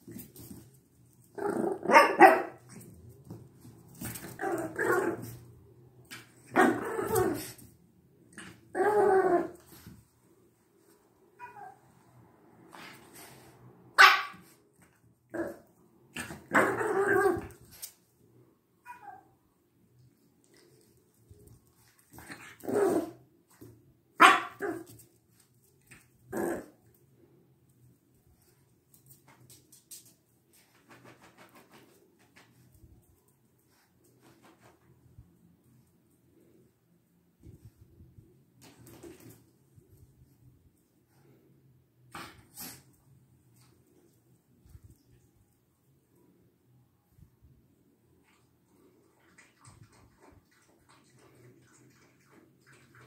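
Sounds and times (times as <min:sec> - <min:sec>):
dog barking: 0:01.8 - 0:02.6, 0:14.0 - 0:14.5, 0:24.2 - 0:24.8.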